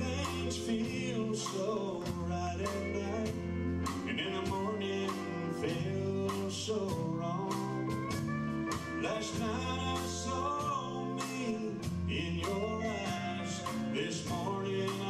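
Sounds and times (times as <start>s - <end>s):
country band playing: 0.0s - 15.0s
pedal steel guitar: 0.0s - 15.0s.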